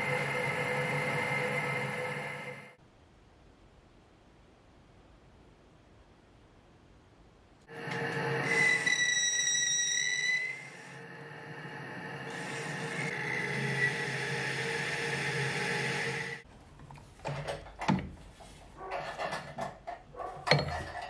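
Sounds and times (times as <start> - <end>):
lathe humming with cutting whine: 0.0 - 2.8, 7.7 - 16.4.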